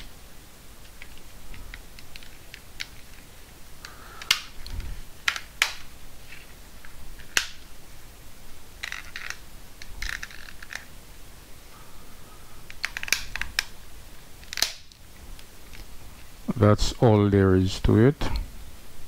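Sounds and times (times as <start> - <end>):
plastic clips snapping: 3.8 - 5.9, 7.2 - 7.7, 12.7 - 13.8, 14.4 - 15.0.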